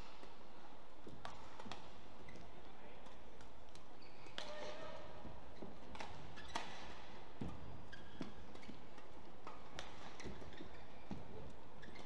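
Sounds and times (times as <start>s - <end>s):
shoes squeaking on court: 1.3s - 2.6s, 3.8s - 12.0s
racket striking shuttlecock: 5.9s - 7.6s.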